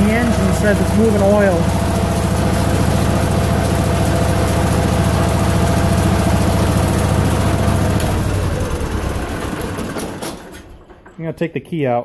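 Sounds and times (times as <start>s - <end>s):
tractor engine running under load: 0.0s - 11.2s.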